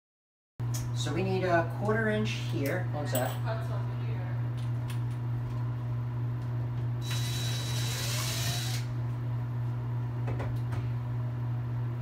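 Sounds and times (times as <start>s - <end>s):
steady low hum: 0.6s - 12.0s
cordless drill boring into wall: 7.0s - 8.9s.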